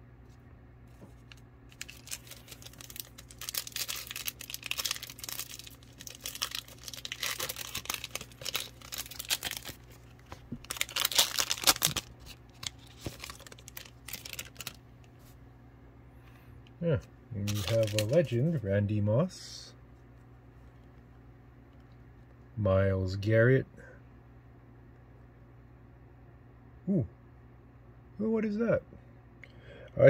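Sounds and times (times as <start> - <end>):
wrapper tearing and crinkling: 1.3 - 14.8, 17.4 - 18.3.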